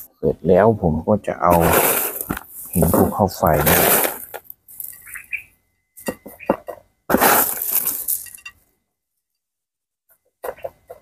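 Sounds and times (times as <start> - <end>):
rushing patter of stones: 1.5 - 5.0, 7.1 - 8.4
rock chips clinking and rattling: 7.3 - 8.6.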